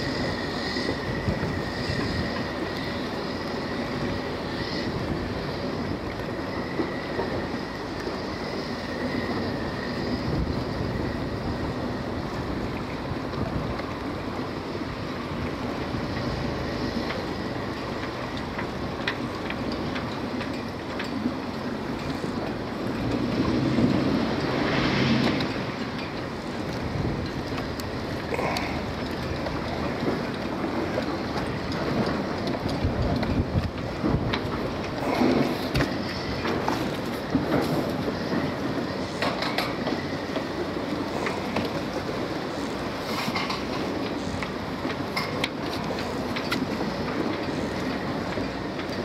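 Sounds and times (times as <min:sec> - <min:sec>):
boat motor rumbling: 0:00.0 - 0:39.0
water noise: 0:00.0 - 0:49.0
wind noise: 0:00.0 - 0:49.0.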